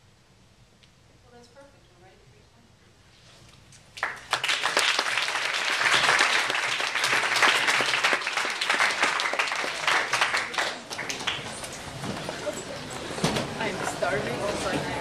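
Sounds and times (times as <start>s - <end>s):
audience applauding: 4.0s - 13.9s.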